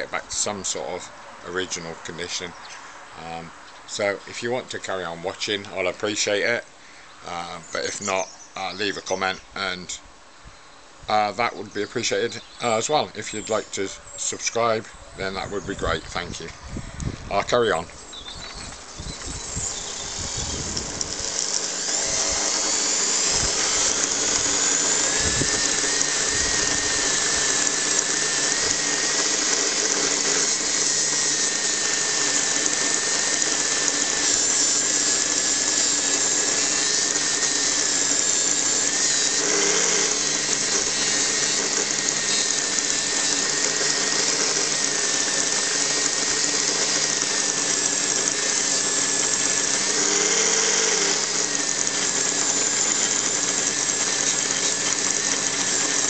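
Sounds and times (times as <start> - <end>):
bench grinder motor whine: 15.2 - 56.0.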